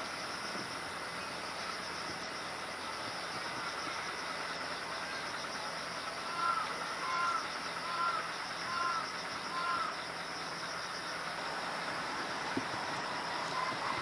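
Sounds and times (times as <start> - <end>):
outdoor background hiss: 0.0 - 14.0
bird calling: 6.0 - 10.8.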